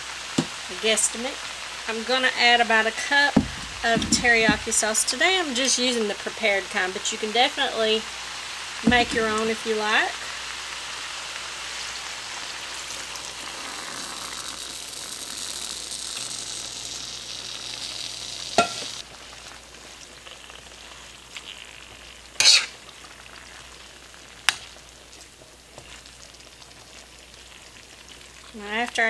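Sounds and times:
sauce sizzling in a wok: 0.0 - 29.0
metal spoon scraping a wok: 22.4 - 22.8.

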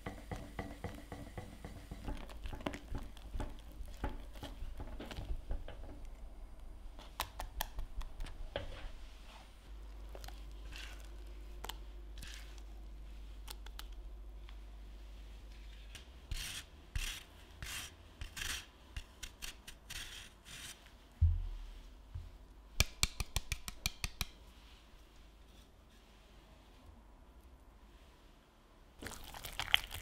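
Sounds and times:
pastry cream scraping saucepan: 0.1 - 6.1, 15.9 - 20.7
thump: 21.2 - 21.6.

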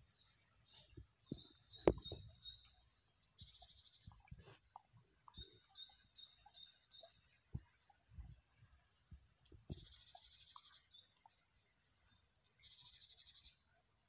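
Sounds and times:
soft low thumps: 0.9 - 2.6.

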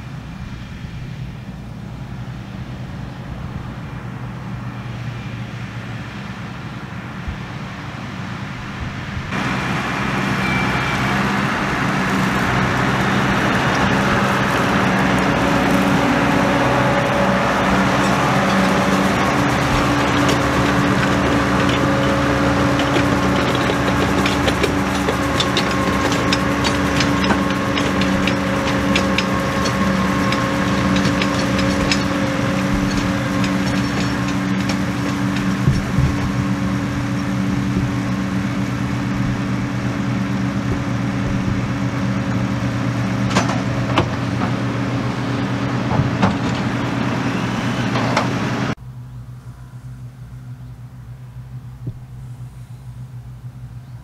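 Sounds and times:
distant low engine hum: 0.0 - 54.0
tractor engine running under load: 0.0 - 54.0
baler clicks and rattles: 12.1 - 37.3.

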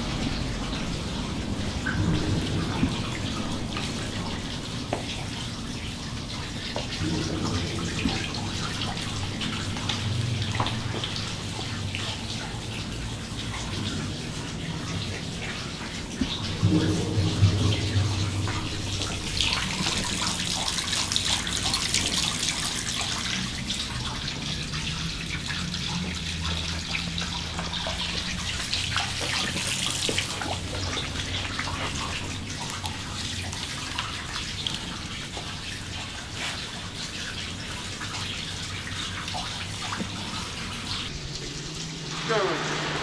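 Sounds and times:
water trickling in a drain: 0.0 - 43.0
small splashes and clicks: 17.7 - 41.6.

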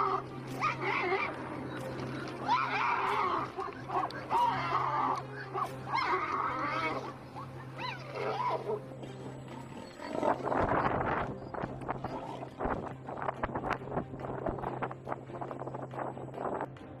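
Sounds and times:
high animal cries: 0.0 - 1.7, 2.4 - 8.9
lion growling: 0.0 - 9.1.

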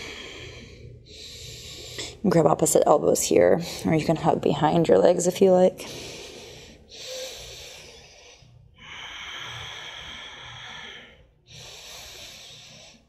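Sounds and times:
woman breathing deeply: 0.0 - 2.2, 5.8 - 13.0.

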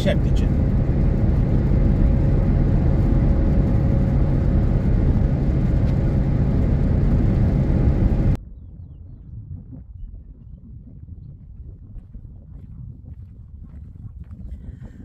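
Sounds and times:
car engine noise: 0.0 - 8.4
tyres rumbling on asphalt: 0.0 - 8.4.

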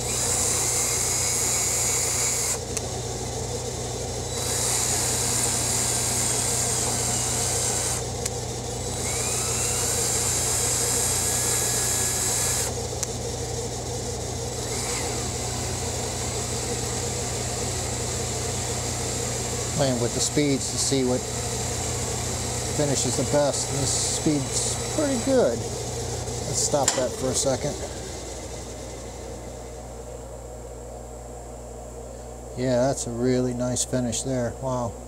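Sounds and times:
lathe turning: 0.0 - 30.1
steady low hum: 0.0 - 35.0
faint rising whine: 22.7 - 34.9.

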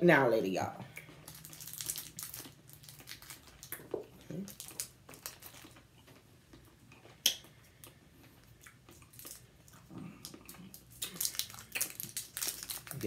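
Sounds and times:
candy wrapper crinkling: 1.2 - 5.9, 9.0 - 9.8, 10.5 - 13.0.

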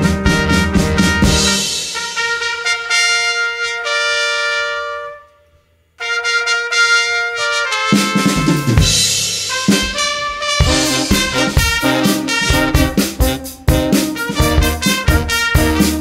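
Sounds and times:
drum kit: 0.0 - 3.1, 6.9 - 16.0
trumpets holding chords: 0.0 - 16.0.

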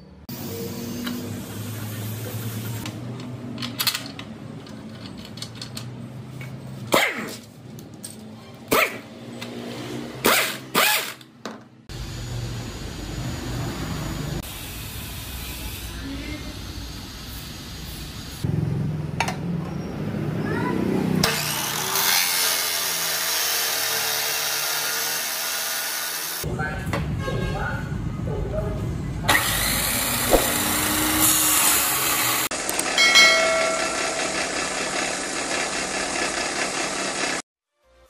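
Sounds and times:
impact wrench bursts: 10.2 - 11.3.

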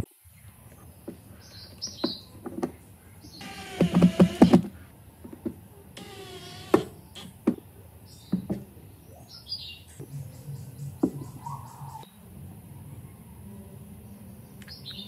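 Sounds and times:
birds chirping: 0.0 - 15.0
impact driver whirring and hammering: 3.4 - 7.6
knocks and taps on wood: 8.3 - 8.7, 11.0 - 11.2.

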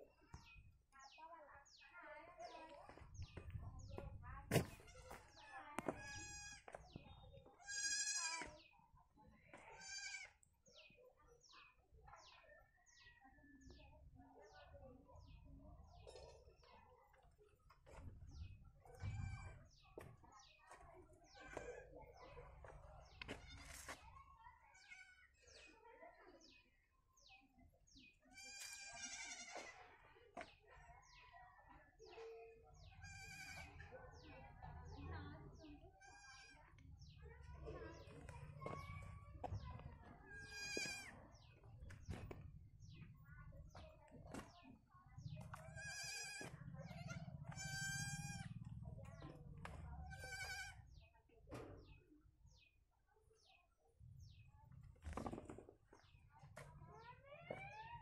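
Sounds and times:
low rumble of wind or handling: 3.0 - 5.0
wavering animal cries: 45.8 - 48.6.

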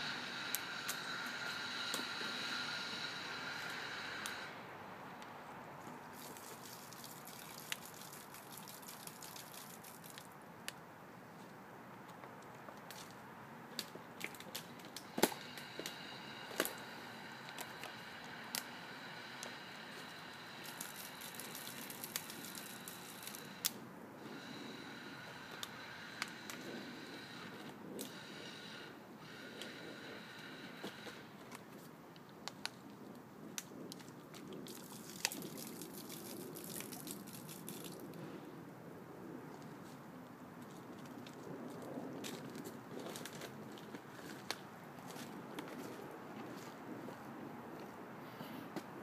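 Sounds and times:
liquid pouring and spattering: 6.1 - 10.3, 20.6 - 23.4, 34.6 - 38.0.

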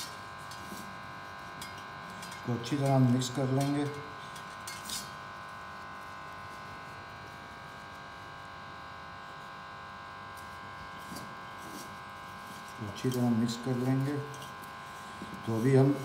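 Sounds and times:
electrical buzzing hum: 0.0 - 16.0
hands mixing food in steel bowl: 11.1 - 16.0.

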